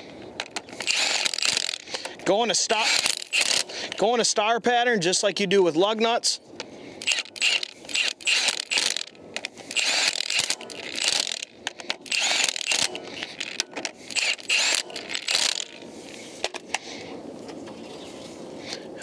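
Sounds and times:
impact wrench rattling bursts: 0:00.4 - 0:04.0, 0:07.0 - 0:16.6.

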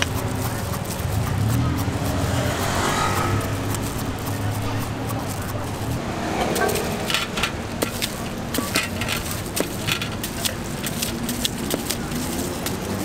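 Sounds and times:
knife cutting apple: 0:00.0 - 0:07.1
street traffic hum: 0:00.0 - 0:13.0.

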